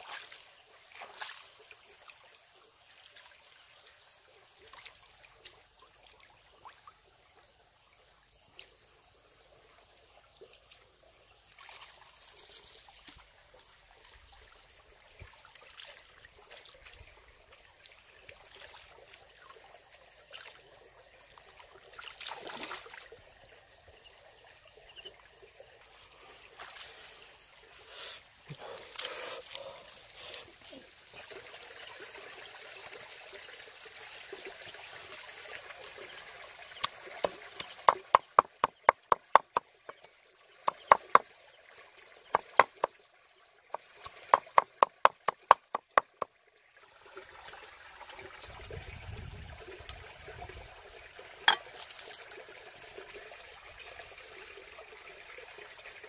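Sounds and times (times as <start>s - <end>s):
water trickling and splashing: 0.0s - 56.0s
knife chopping on wooden board: 40.7s - 41.2s, 42.4s - 42.9s.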